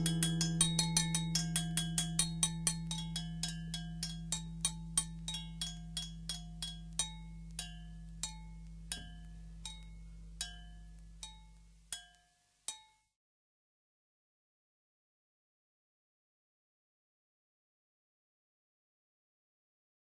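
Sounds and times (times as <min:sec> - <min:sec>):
held low note: 0:00.0 - 0:02.5
ringing percussion strikes: 0:00.0 - 0:12.9.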